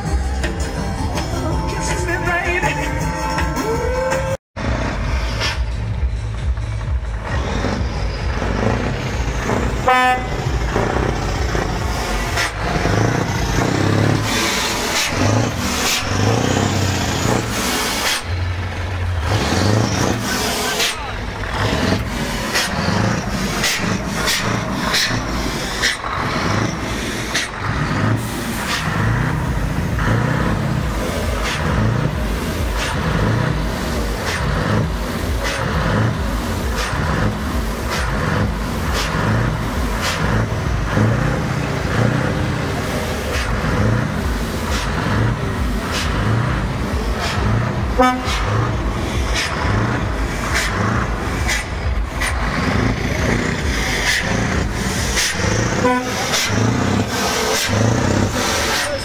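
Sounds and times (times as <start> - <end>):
short horn toots: 48.0 - 48.6, 55.7 - 56.6.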